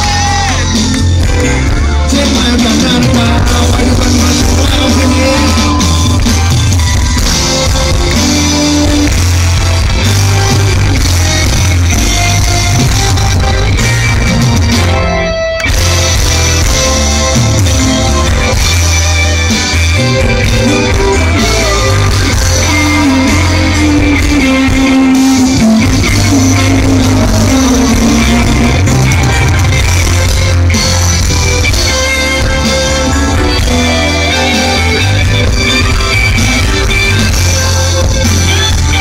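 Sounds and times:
pop-rock band playing: 0:00.0 - 0:39.0
man singing: 0:01.9 - 0:06.5, 0:20.0 - 0:30.2, 0:32.3 - 0:37.2.

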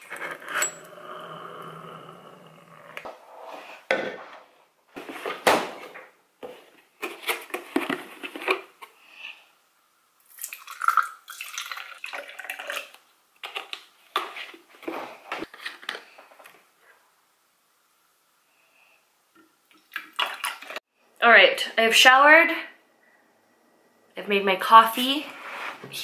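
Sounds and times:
plastic tumbler and cartons clattering: 0:07.0 - 0:08.8
liquid pouring into tumbler: 0:10.3 - 0:13.0.

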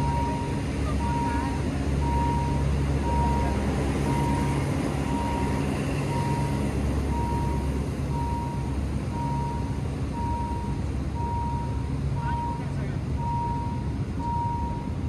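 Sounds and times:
electronic warning beeps: 0:00.0 - 0:15.0
vehicle engine running: 0:00.0 - 0:15.0.

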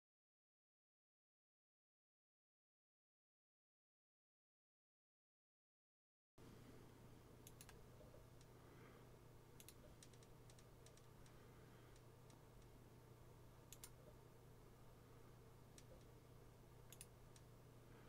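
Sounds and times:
low room hum: 0:06.4 - 0:18.0
faint sharp clicks: 0:07.4 - 0:07.8, 0:09.6 - 0:12.8, 0:13.7 - 0:14.0, 0:16.8 - 0:17.5.

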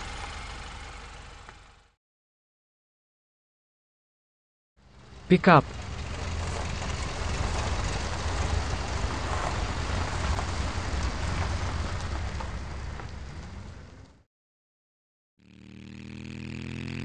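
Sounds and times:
truck engine rumbling: 0:00.0 - 0:01.9, 0:04.8 - 0:14.2.

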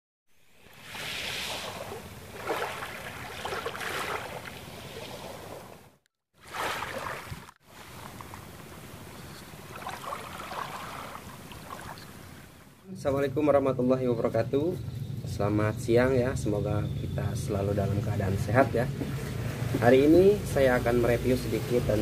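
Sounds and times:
small waves washing on shore: 0:00.4 - 0:12.8.

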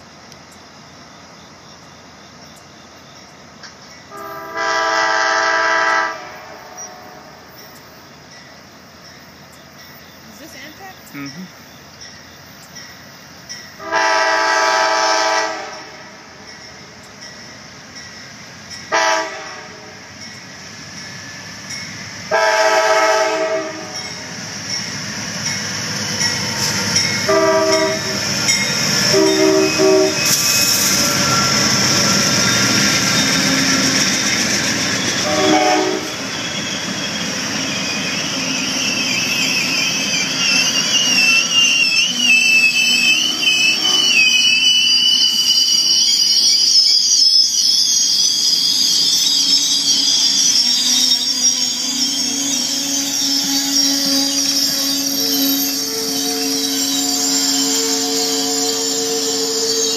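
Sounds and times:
train cars rumbling: 0:00.0 - 0:59.9
train horn blasts: 0:04.1 - 0:07.5, 0:13.8 - 0:16.4, 0:18.9 - 0:20.0, 0:22.3 - 0:24.0, 0:27.2 - 0:28.2, 0:29.0 - 0:30.4, 0:35.2 - 0:36.2, 0:43.0 - 0:44.3, 0:52.9 - 0:59.9
wheel squeal: 0:24.6 - 0:59.9.

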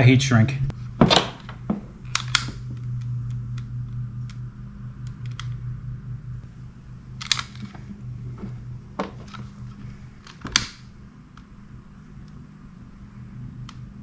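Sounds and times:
steady low hum: 0:00.0 - 0:14.0
torch lighter clicking: 0:02.0 - 0:04.4, 0:10.2 - 0:10.8.

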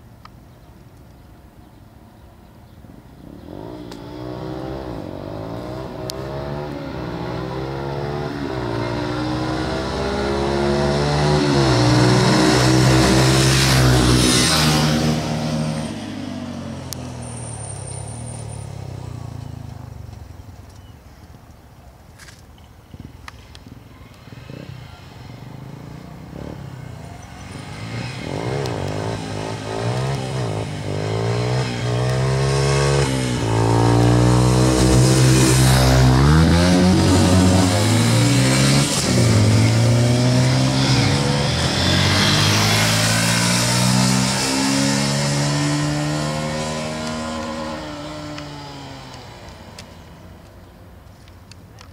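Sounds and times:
motorcycles accelerating through gears: 0:03.2 - 0:20.2, 0:24.1 - 0:50.7.

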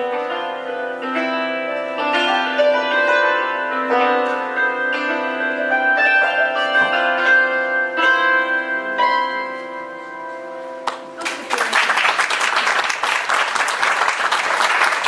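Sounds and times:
hammered dulcimer notes ringing: 0:00.0 - 0:10.8
audience applause: 0:10.9 - 0:15.0.

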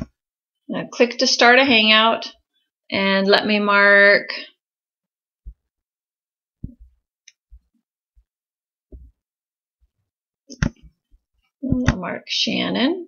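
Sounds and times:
computer mouse thumps and taps: 0:06.6 - 0:07.7, 0:08.9 - 0:09.2, 0:10.5 - 0:11.0.

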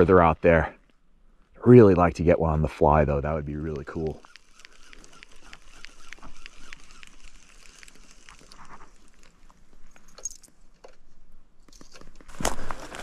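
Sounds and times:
fishing reel clicking: 0:03.9 - 0:08.5.

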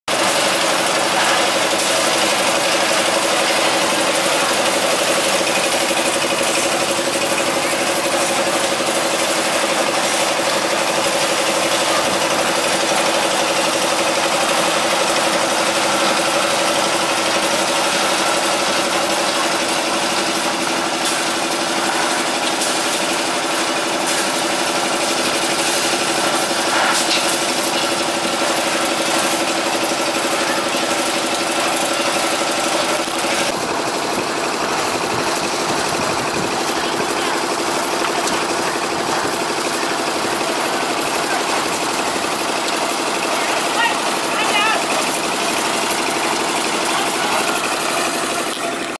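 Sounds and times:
concrete mixer engine running: 0:00.0 - 0:48.9.

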